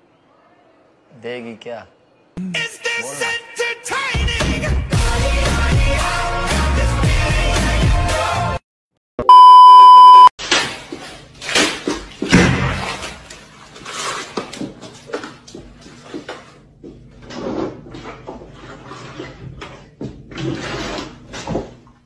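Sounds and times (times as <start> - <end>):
water sloshing in jug: 10.4 - 22.0.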